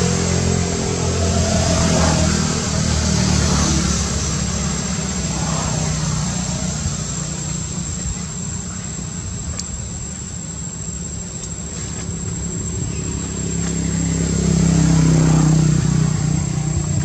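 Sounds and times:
steady high-pitched whine: 0.0s - 17.0s
vehicle engine running: 0.0s - 17.0s.

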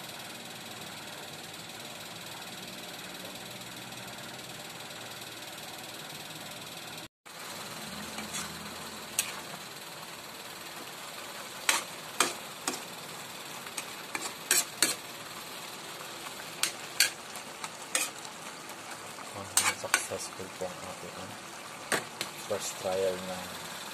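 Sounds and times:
simmering hiss: 7.3s - 23.9s.

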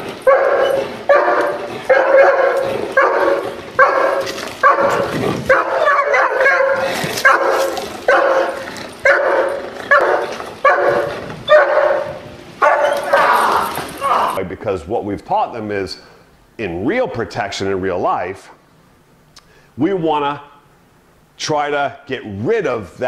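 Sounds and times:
dog barking: 0.2s - 14.4s.

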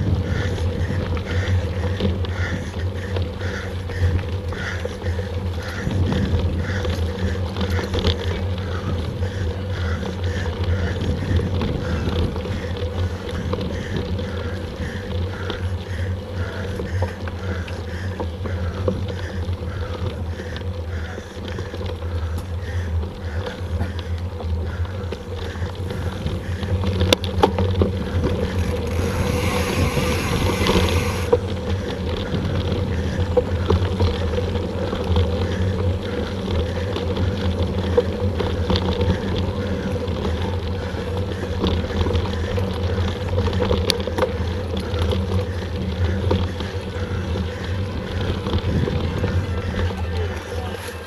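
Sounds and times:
bike clicks and rattles: 0.0s - 51.0s
tyres rolling over dirt: 0.0s - 51.0s
wind rumble on microphone: 0.0s - 51.0s.

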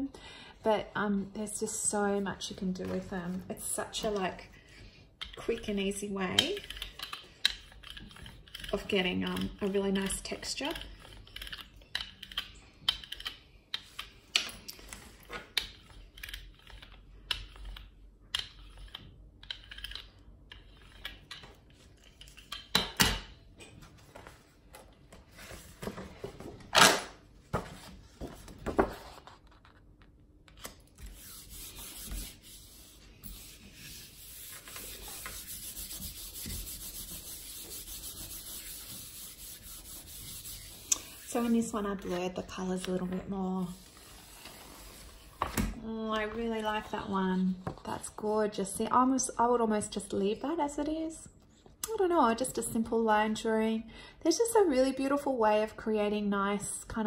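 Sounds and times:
palm rubbing paper: 31.0s - 41.9s.

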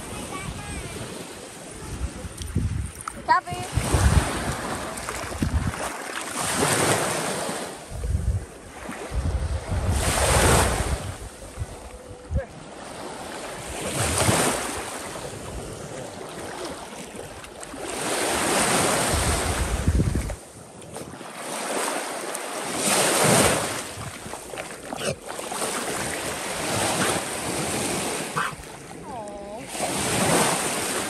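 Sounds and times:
wind gusting on microphone: 0.0s - 16.2s, 17.8s - 21.1s
water lapping and splashing: 0.0s - 31.0s.

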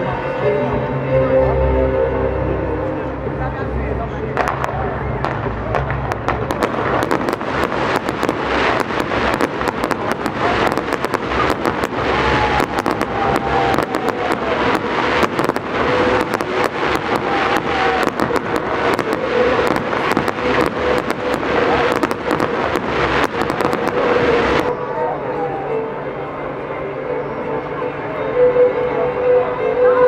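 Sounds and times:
fireworks bangs and crackles: 4.1s - 24.7s.

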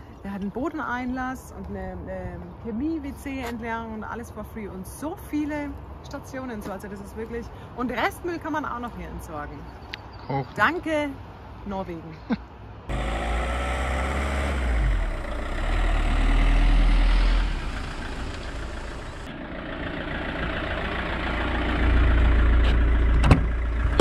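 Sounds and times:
van engine rumbling: 12.5s - 24.0s.

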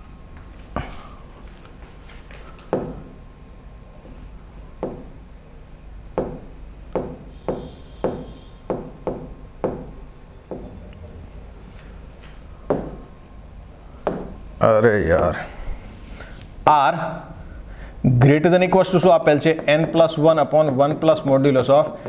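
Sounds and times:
taps on touchscreen board: 2.7s - 3.1s, 4.8s - 5.1s, 6.2s - 10.7s, 12.7s - 13.0s, 14.1s - 14.4s, 19.4s - 21.5s.

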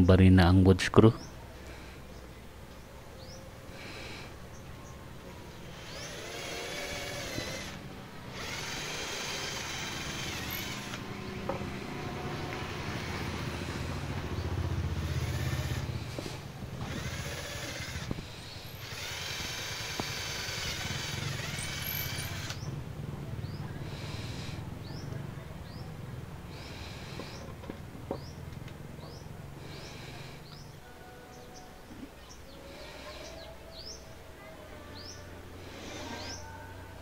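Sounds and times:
electric hand drill running: 5.7s - 11.3s, 12.1s - 22.6s, 23.9s - 24.6s, 26.6s - 27.4s, 35.6s - 36.3s.

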